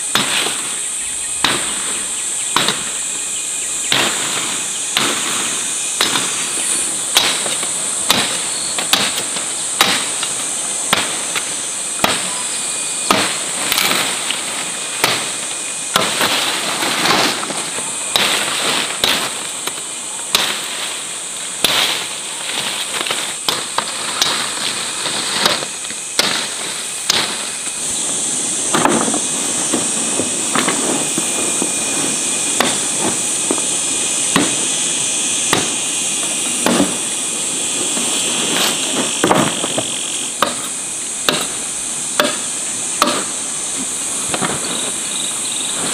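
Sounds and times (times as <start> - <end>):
high-pitched insect drone: 0.0 - 45.9
hand tool strikes: 7.1 - 12.4, 40.4 - 41.6, 42.2 - 43.3.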